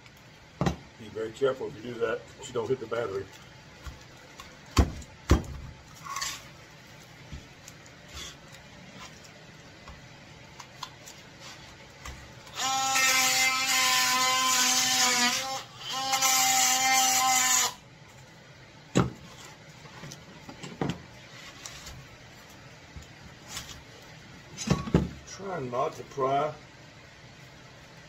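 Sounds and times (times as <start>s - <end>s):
oscillating multi-tool buzzing: 12.5s - 17.8s.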